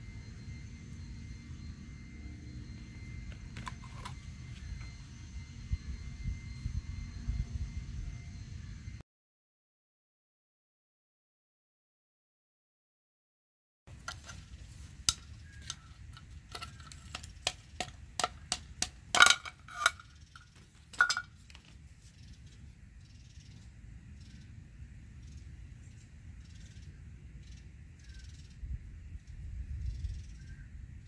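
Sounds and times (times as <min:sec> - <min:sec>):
metal parts clicking and clinking: 0:14.0 - 0:21.7.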